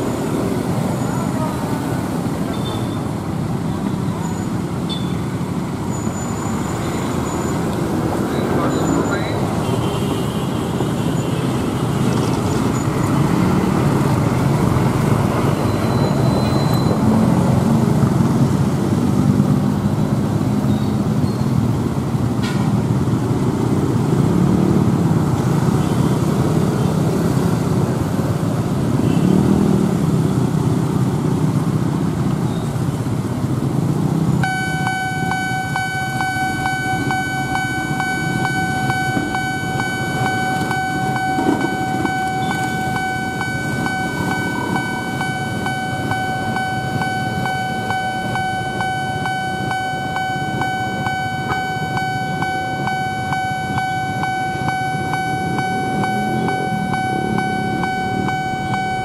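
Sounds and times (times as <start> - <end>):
road traffic passing: 0.0 - 59.0
electronic level crossing alarm: 12.3 - 17.4, 34.4 - 59.0.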